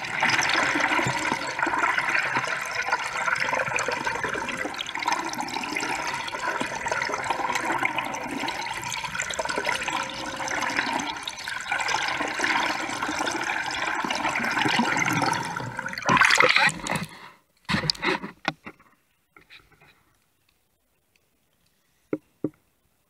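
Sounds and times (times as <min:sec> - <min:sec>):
water splashes and drips: 0:00.0 - 0:13.2
water rushing and bubbling underwater: 0:00.0 - 0:18.3.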